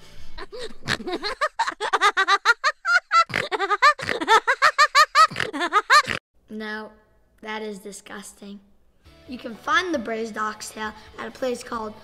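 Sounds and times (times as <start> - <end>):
boy giggling: 0.4 - 6.2.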